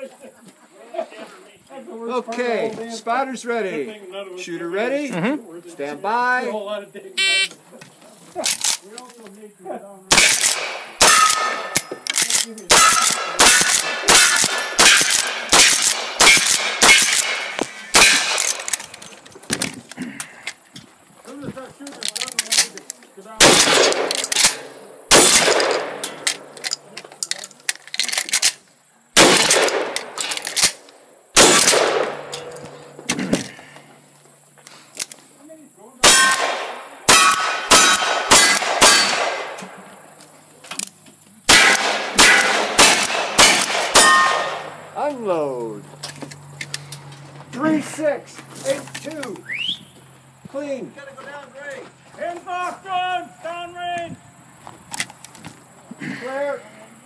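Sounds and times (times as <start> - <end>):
rifle shots: 10.1 - 18.9, 23.4 - 26.6, 29.2 - 30.8, 31.4 - 33.0, 36.0 - 39.8, 41.5 - 44.8
steel target ringing: 10.2 - 11.9, 12.7 - 18.4, 36.0 - 39.2, 41.5 - 44.8
clicks and clatter: 11.3 - 20.6, 21.8 - 23.1, 25.3 - 28.6.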